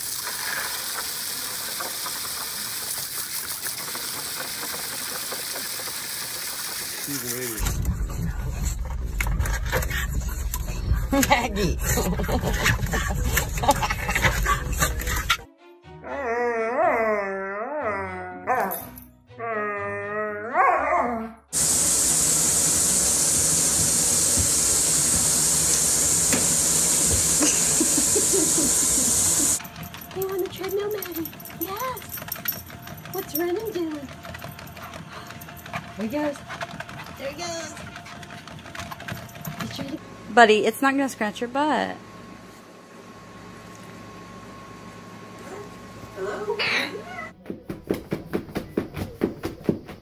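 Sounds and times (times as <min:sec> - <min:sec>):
water jet splashing on plastic: 0:00.0 - 0:07.6, 0:21.6 - 0:29.6
dog howling: 0:16.0 - 0:18.7, 0:19.4 - 0:21.4.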